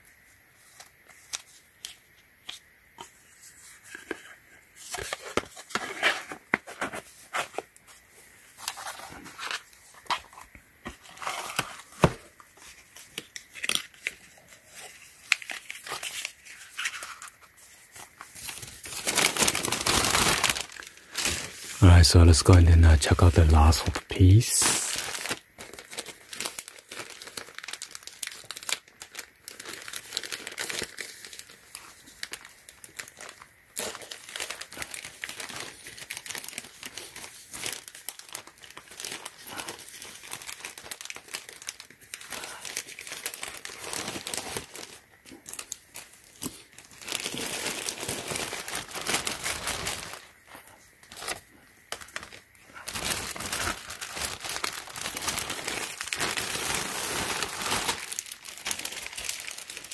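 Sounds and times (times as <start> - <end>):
plastic bag crinkling: 12.6 - 50.4, 51.0 - 59.9.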